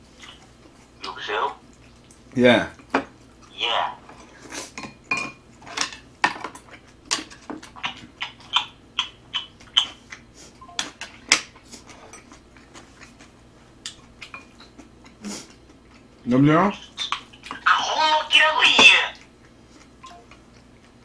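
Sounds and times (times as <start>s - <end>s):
wet chewing and lip-smacking: 6.6s - 17.6s, 19.2s - 21.0s.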